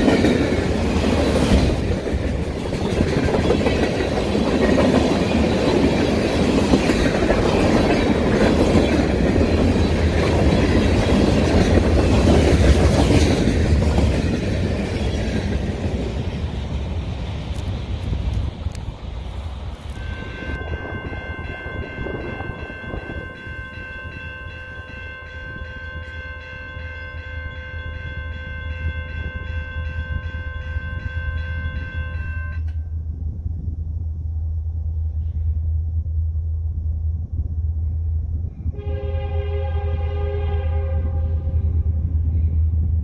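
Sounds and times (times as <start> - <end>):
locomotive horn blast: 19.9 - 23.7, 38.7 - 42.0
low rumble: 32.9 - 38.8.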